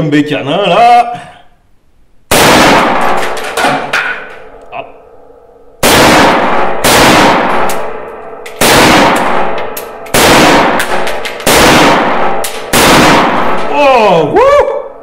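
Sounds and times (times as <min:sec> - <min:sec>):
rifle shots ringing in a room: 0:02.3 - 0:13.8.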